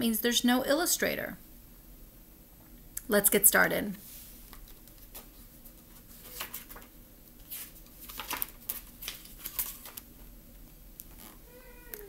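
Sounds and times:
book pages flipping: 4.2s - 10.3s.

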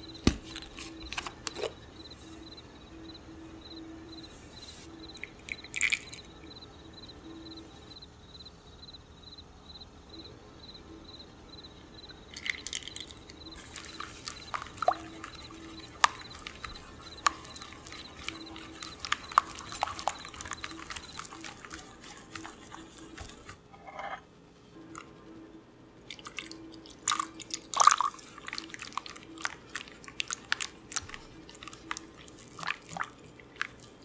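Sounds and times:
oil pouring into batter: 5.2s - 6.2s, 12.3s - 23.5s
whisk stirring batter: 12.3s - 23.7s, 26.1s - 34.0s
whisk clicking against glass: 12.4s - 23.5s.

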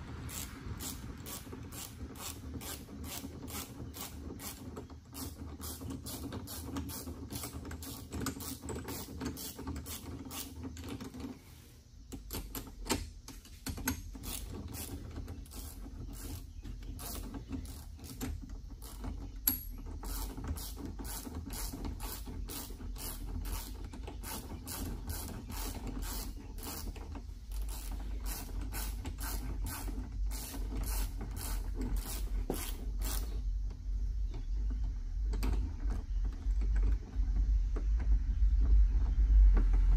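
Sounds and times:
low hum: 33.0s - 39.9s.

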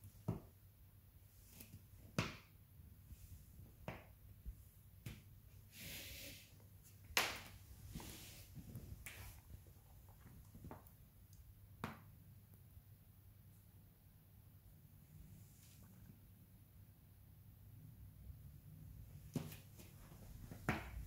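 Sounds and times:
soft sand rustle: 7.8s - 9.4s
foot tapping on floor: 19.3s - 21.0s.

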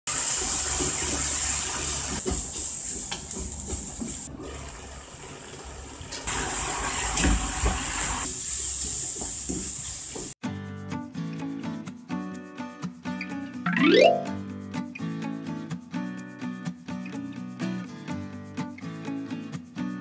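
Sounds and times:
food sizzling in frying pan: 0.1s - 10.4s
music: 10.4s - 20.0s.

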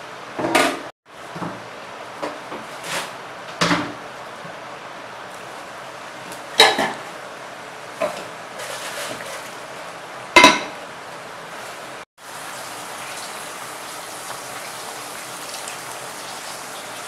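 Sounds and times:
water trickling and splashing: 12.2s - 17.0s.

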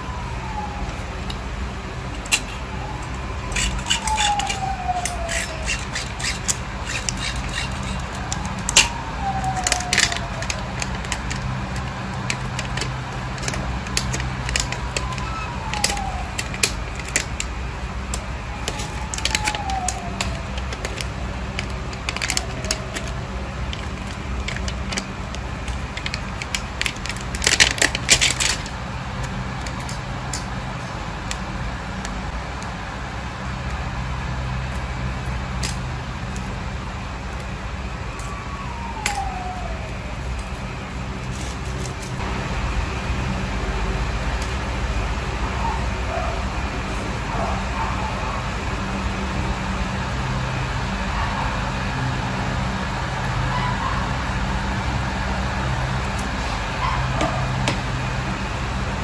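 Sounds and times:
steady low hum: 0.0s - 59.0s
dog whimpering: 2.7s - 6.2s, 14.8s - 16.3s, 45.5s - 46.5s, 47.2s - 48.5s, 53.5s - 54.2s.

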